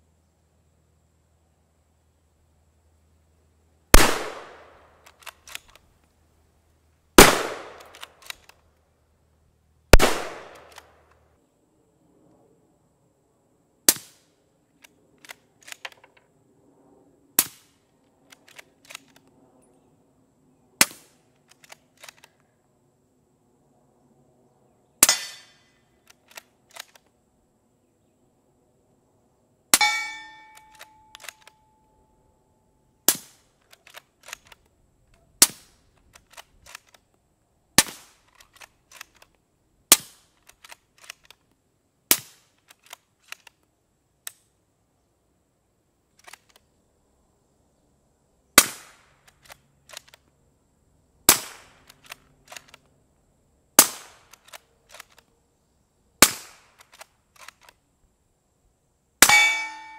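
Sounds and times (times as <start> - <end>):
suppressed rifle shots: 3.9 - 5.8, 7.2 - 8.5, 9.9 - 11.1, 51.3 - 52.8, 53.8 - 55.2, 56.2 - 57.7, 59.2 - 59.9
faint clicks: 5.0 - 6.2, 7.8 - 8.8, 18.0 - 19.4, 21.2 - 22.6, 26.0 - 27.2, 30.5 - 31.7, 33.6 - 35.2, 35.9 - 37.2, 38.2 - 39.4, 40.3 - 41.6, 42.5 - 44.5, 46.1 - 46.8, 49.2 - 50.4, 51.6 - 53.0, 54.2 - 55.4, 56.6 - 57.8.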